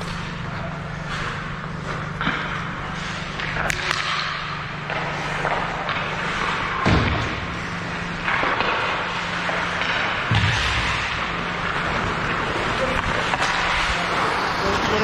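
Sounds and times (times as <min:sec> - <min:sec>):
steady low hum: 0:00.0 - 0:15.0
skate blades scraping ice: 0:04.9 - 0:06.8, 0:07.9 - 0:15.0
loud thud: 0:06.8 - 0:07.4, 0:10.3 - 0:11.2.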